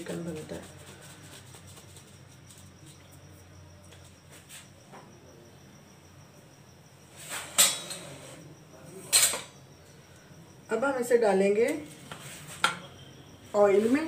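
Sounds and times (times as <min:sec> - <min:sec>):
faint steady high tone: 0:02.5 - 0:11.9, 0:12.6 - 0:14.0.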